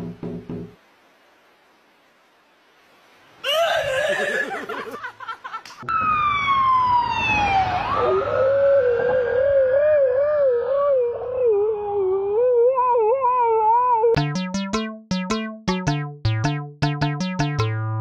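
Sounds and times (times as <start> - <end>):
siren wailing: 5.9 - 10.1
husky howling: 8.1 - 14.2
warbling pitched sound: 14.2 - 18.0.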